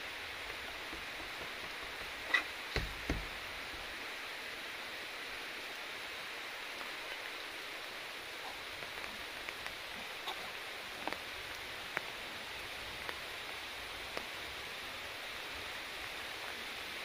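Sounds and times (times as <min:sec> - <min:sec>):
outdoor background hiss: 0:00.0 - 0:17.0
dull knocks: 0:02.7 - 0:03.5.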